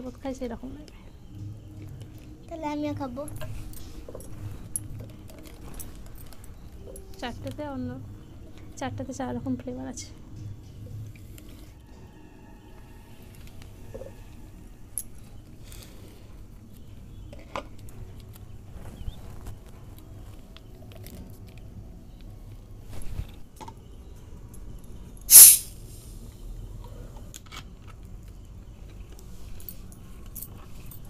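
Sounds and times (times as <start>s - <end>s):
soda bottle cap hiss: 25.3s - 26.2s.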